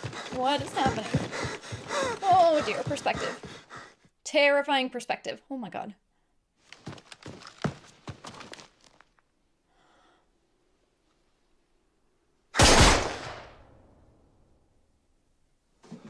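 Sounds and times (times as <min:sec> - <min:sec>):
rifle shot with echo: 0:12.6 - 0:13.6.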